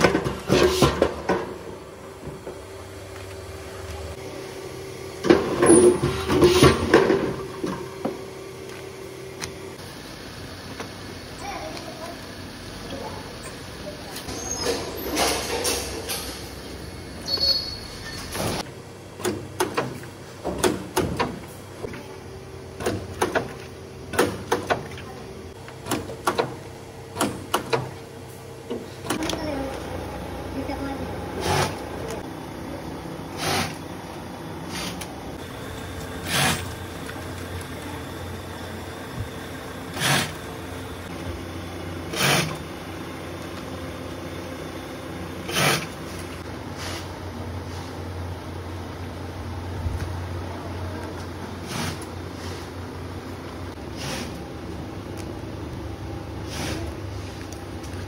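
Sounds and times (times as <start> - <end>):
faint motor hum: 18.6 - 58.0.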